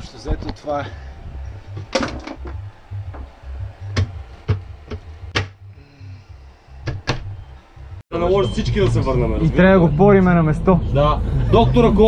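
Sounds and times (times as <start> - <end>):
low rumble: 0.9 - 6.6.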